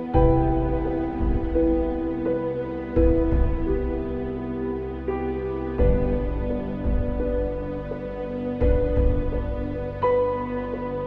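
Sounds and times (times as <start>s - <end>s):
slow soft background music: 0.0s - 11.0s
deep low hit: 0.1s - 4.4s, 5.8s - 8.0s, 8.6s - 10.2s.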